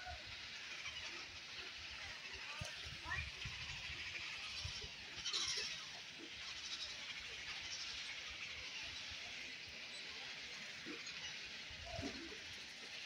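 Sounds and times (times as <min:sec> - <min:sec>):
high-pitched bird colony din: 0:00.0 - 0:13.0.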